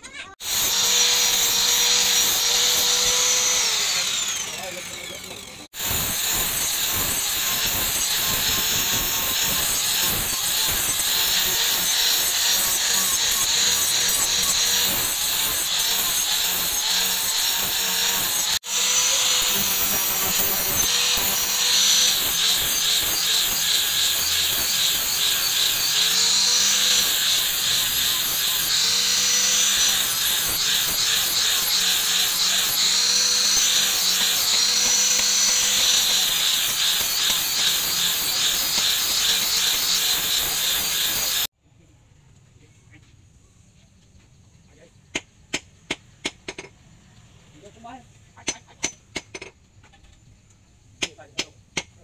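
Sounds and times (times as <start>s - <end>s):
power tool grinding: 0.3s - 41.5s.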